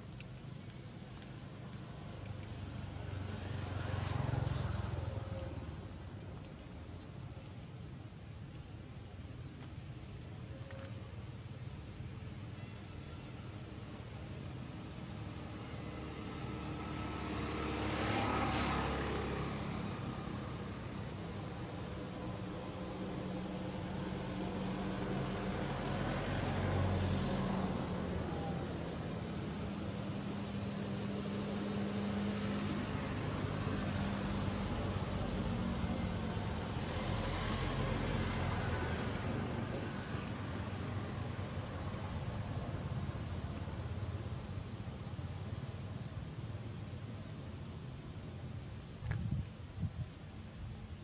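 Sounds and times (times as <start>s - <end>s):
insect high-pitched trill: 4.9s - 11.9s
distant motor traffic hum: 13.4s - 51.0s.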